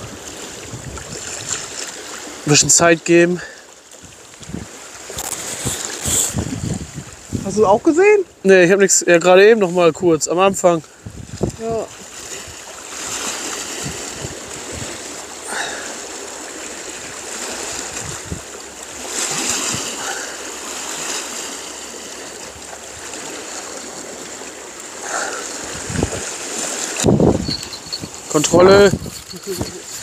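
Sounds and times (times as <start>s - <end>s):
waves breaking on shore: 0.0s - 30.0s.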